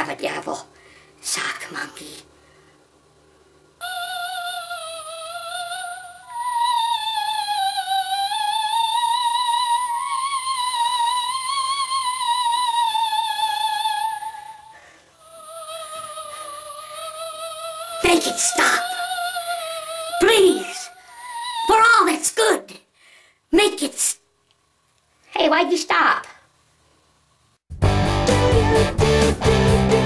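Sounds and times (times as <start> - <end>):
operatic singing voice with vibrato: 3.8 - 22.5.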